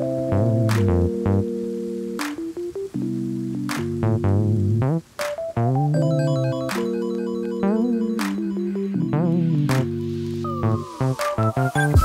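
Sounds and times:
reggae music with guitar and bass: 3.1s - 12.0s.

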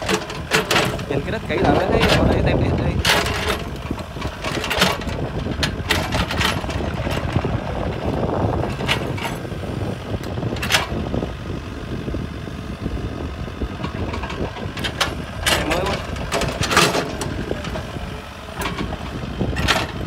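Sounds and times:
excavator diesel engine running: 0.0s - 20.0s.

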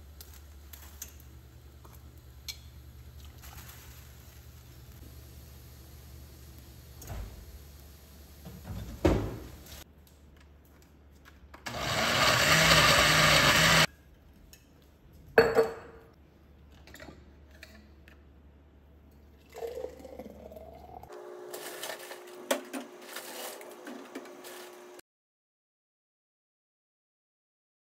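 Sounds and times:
blender running: 11.7s - 13.9s, 21.1s - 25.0s.

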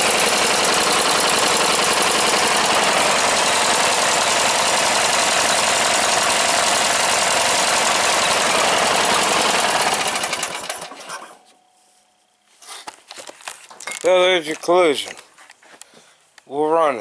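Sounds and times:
mower engine running: 0.0s - 11.3s.

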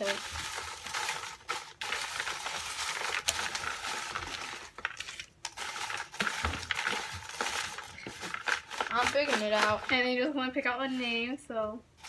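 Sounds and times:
paper slips rustling in plastic bowl: 0.0s - 10.3s.

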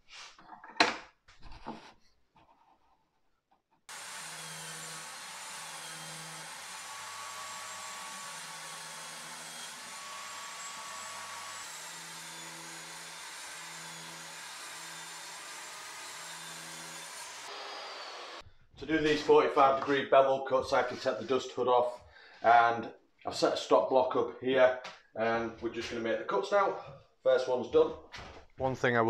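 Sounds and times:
table saw ripping plywood: 3.9s - 18.4s.

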